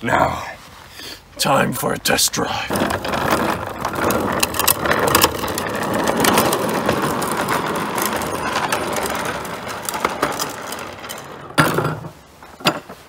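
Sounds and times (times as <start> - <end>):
plastic wheels rolling on asphalt: 1.4 - 13.0
toy clicks and rattles: 2.7 - 12.1.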